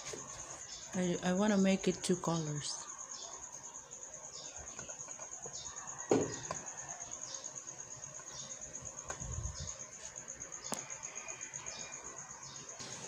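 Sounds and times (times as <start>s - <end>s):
cricket chirping: 0.0s - 13.0s
light knocks on a table: 6.1s - 6.6s.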